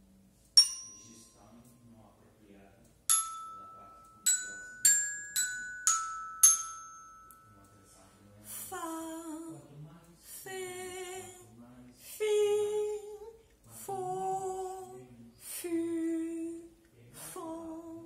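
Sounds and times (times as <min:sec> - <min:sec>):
woman chanting syllables: 0:12.1 - 0:18.0.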